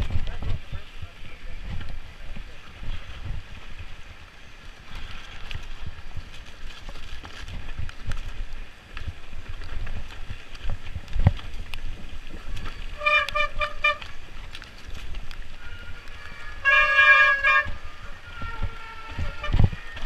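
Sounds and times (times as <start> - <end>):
bike rolling over rough trail: 0.0 - 20.0
wind on microphone: 0.0 - 20.0
disc brakes honking: 12.9 - 14.2, 15.5 - 20.0.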